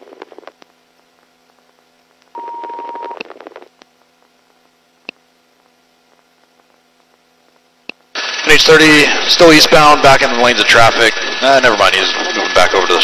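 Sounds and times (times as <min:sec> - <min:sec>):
radio static: 0:00.0 - 0:13.0
radio chirps and squelch clicks: 0:00.1 - 0:08.1
steady radio beep: 0:02.4 - 0:03.2.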